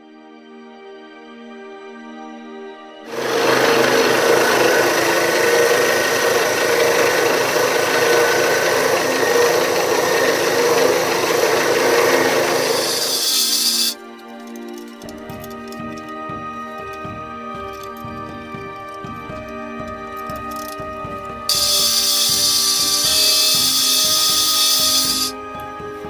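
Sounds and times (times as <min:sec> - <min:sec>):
scroll saw cutting wood: 0:03.1 - 0:14.0, 0:20.4 - 0:25.4.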